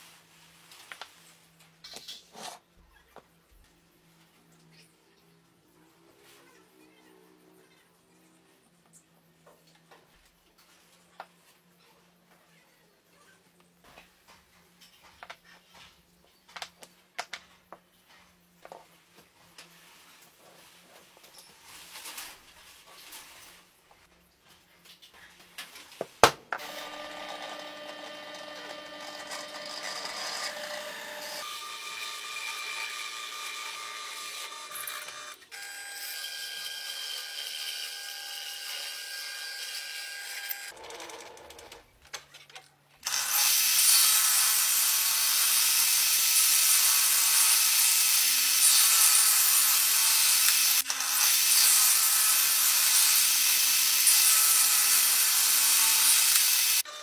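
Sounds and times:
table saw cutting plywood: 0:26.6 - 0:40.7, 0:43.1 - 0:57.0
drill press boring wood: 0:26.6 - 0:41.4.

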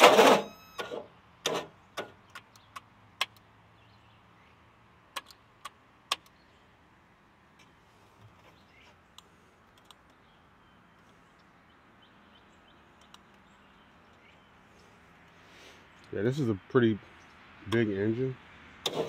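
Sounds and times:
sharp clicks of dash controls: 0:00.7 - 0:03.5, 0:05.1 - 0:06.4.

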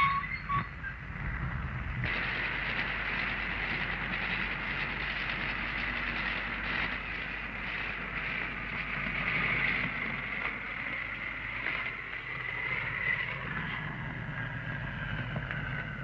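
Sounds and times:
steady rushing noise: 0:00.7 - 0:16.0.

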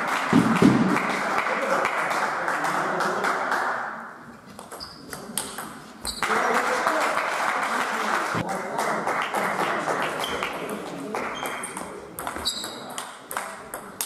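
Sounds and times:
table tennis balls clicking: 0:04.5 - 0:06.2, 0:10.2 - 0:14.0
murmur of voices: 0:06.3 - 0:14.0.

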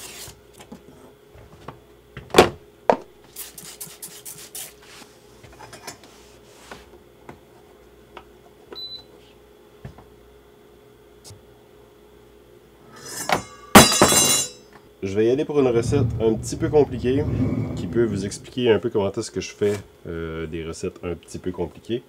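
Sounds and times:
low electrical hum: 0:00.0 - 0:22.0
scraping strokes: 0:15.7 - 0:18.6.

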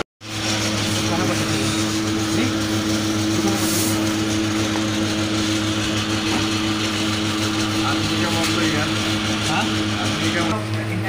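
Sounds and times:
machine motor humming: 0:00.0 - 0:11.0.

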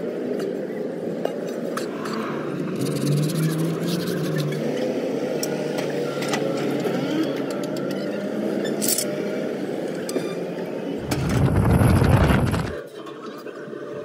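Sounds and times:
low rumble: 0:11.0 - 0:12.8.

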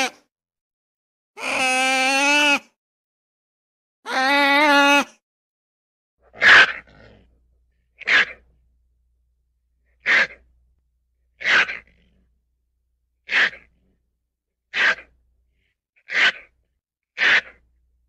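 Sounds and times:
ferret sneezing: 0:06.2 - 0:07.3, 0:08.0 - 0:08.5, 0:10.0 - 0:10.4, 0:11.4 - 0:12.2, 0:13.2 - 0:13.8, 0:14.7 - 0:15.1, 0:16.1 - 0:16.5, 0:17.2 - 0:17.6.

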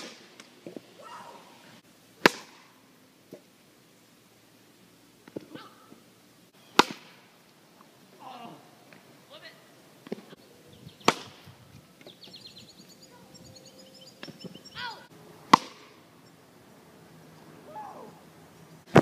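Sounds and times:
plastic bat hitting ball: 0:02.2 - 0:02.6, 0:06.8 - 0:07.2, 0:11.0 - 0:11.4, 0:15.5 - 0:16.0.

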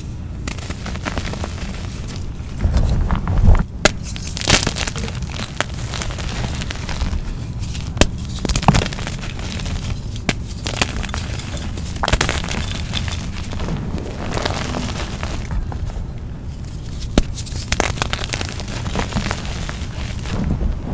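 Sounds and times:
powdery chalk crunching: 0:00.0 - 0:20.8
chalk chunks cracking: 0:03.8 - 0:15.9, 0:16.6 - 0:20.4.

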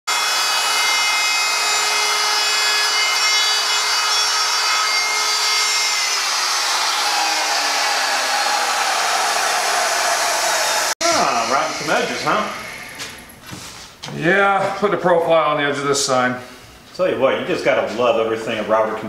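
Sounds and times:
router cutting wood: 0:00.1 - 0:13.3.

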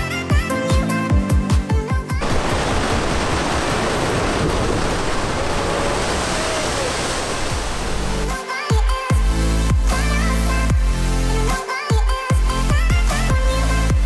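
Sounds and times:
sea waves crashing against cliffs: 0:02.2 - 0:08.3.

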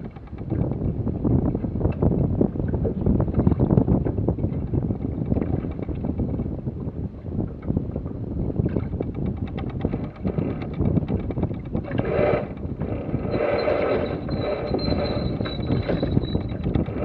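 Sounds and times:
wind buffeting microphone: 0:00.0 - 0:17.0
thin high whine: 0:13.1 - 0:16.6.

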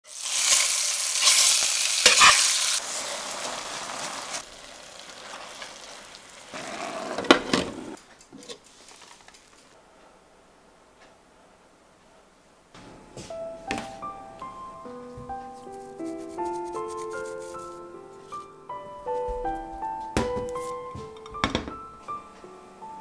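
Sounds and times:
chicken sizzling in hot oil: 0:00.0 - 0:07.2.

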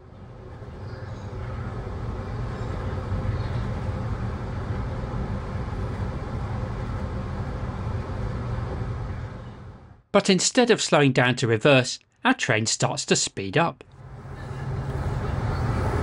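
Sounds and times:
train wheels rumbling on rail: 0:14.1 - 0:16.0.

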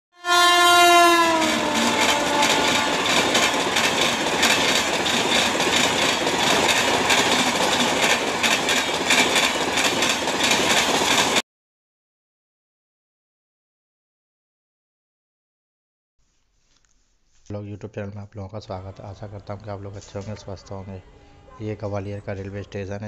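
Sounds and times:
locomotive horn: 0:00.1 - 0:04.2, 0:18.7 - 0:22.9
train wheels clattering over rails: 0:01.3 - 0:11.4.

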